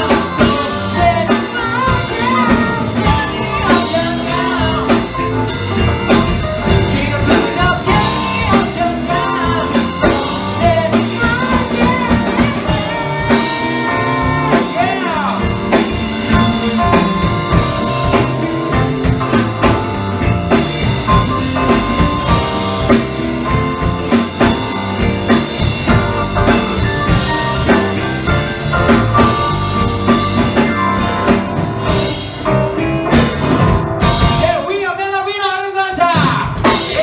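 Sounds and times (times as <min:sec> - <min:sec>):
electric guitar: 0:00.0 - 0:34.6
electric keyboard: 0:00.0 - 0:35.3
bass guitar: 0:00.0 - 0:37.0
drum kit steady beat: 0:00.0 - 0:37.0.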